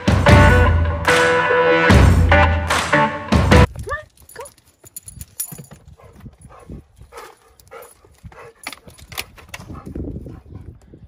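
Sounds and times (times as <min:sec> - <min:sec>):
dog paws crunching on gravel: 0:03.7 - 0:10.5.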